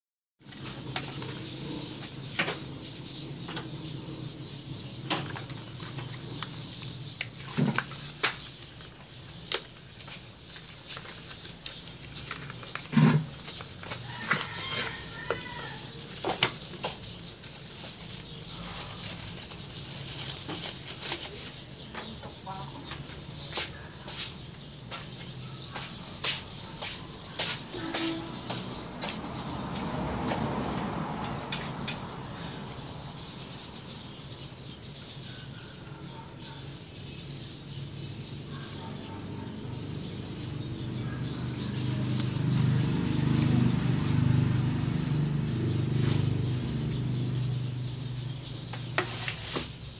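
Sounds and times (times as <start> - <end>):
plastic packaging rustling: 5.2 - 21.8.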